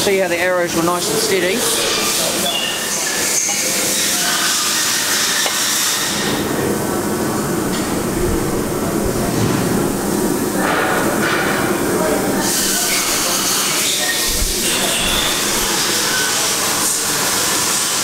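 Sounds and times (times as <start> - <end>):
balancing machine spinning: 7.6 - 17.3.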